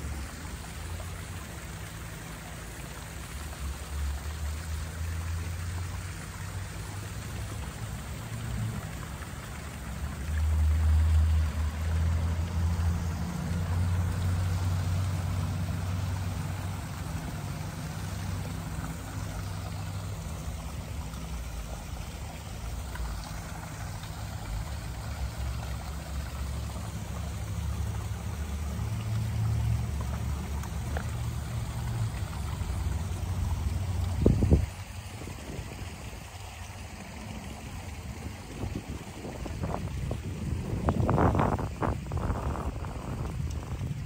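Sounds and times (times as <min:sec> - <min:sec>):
waterfall splashing into a pond: 0:00.0 - 0:44.0.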